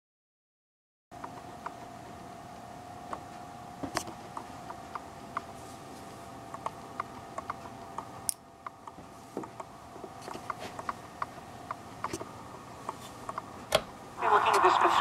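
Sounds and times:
static crackles and pops: 14.2 - 15.0.

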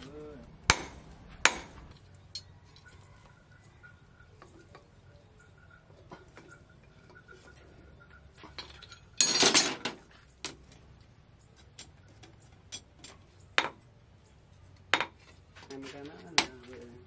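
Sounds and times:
hammer striking hot steel: 0.6 - 1.9
metallic clinks: 1.9 - 9.9.

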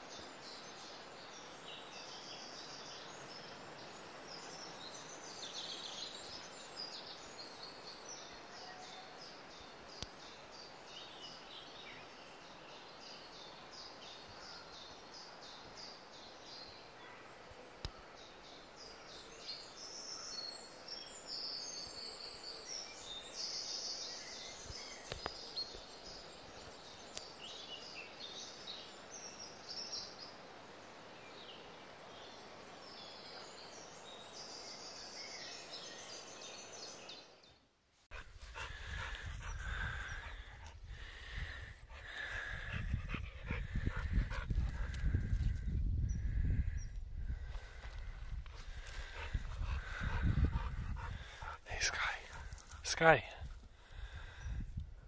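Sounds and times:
birds chirping: 31.2 - 54.6.

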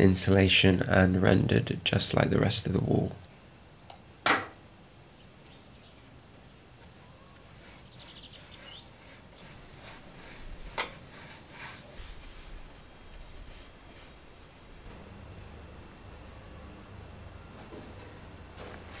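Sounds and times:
faint high bird chirps: 5.2 - 9.5.

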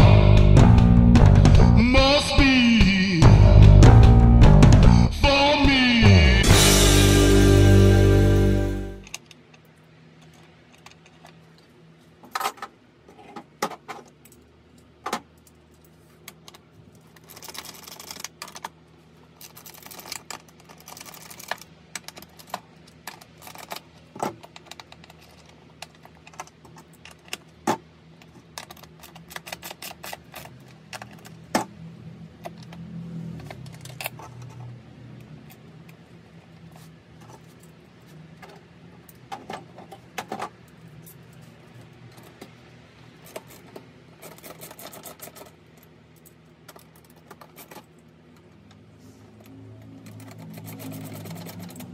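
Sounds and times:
metal clinks and rattles of wrench: 50.0 - 51.9.

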